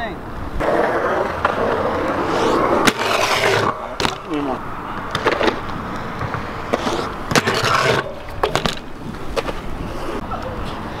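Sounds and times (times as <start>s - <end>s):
bike tyres rolling on concrete: 0.4s - 11.0s
rushing scrape: 0.6s - 4.2s, 6.7s - 8.6s.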